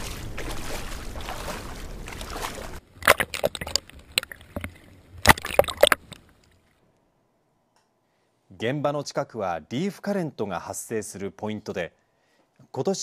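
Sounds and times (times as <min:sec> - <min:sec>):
water splashing against camera: 0:00.0 - 0:06.7
wind: 0:00.0 - 0:08.4.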